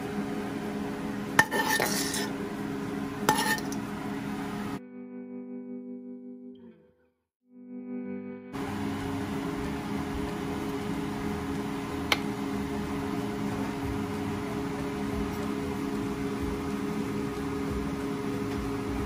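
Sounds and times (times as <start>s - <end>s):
kitchen fan motor humming: 0.0s - 4.8s, 8.6s - 19.0s.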